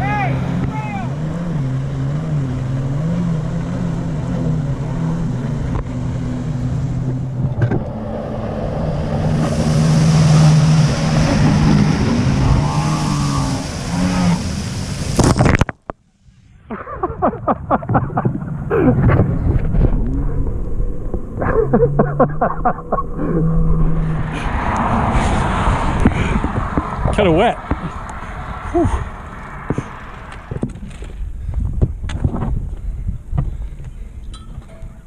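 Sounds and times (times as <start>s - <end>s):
jet ski engine running: 0.0s - 15.6s
water spray hissing: 8.7s - 15.6s.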